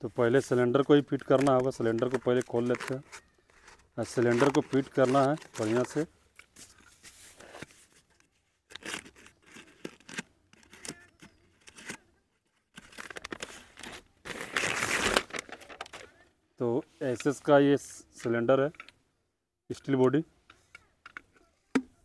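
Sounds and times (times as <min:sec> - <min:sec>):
paper wrapping tearing and crinkling: 0:01.2 - 0:06.1, 0:08.7 - 0:12.0, 0:12.7 - 0:16.1.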